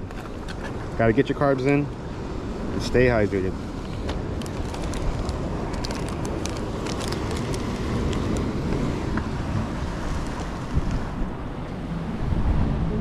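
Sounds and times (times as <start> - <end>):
sea waves washing: 0.0 - 13.0
wind on microphone: 0.0 - 13.0
light crackles: 3.8 - 9.3.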